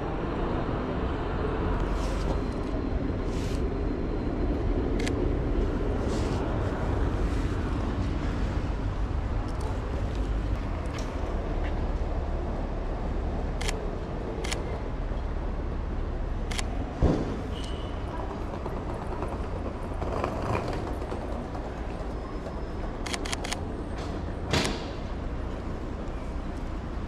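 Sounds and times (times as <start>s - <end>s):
street background rumble: 0.0s - 27.0s
loud thump: 17.0s - 17.5s.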